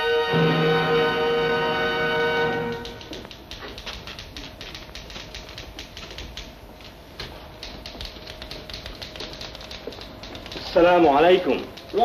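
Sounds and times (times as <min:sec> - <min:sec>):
typewriter keys clacking: 0:02.6 - 0:12.0.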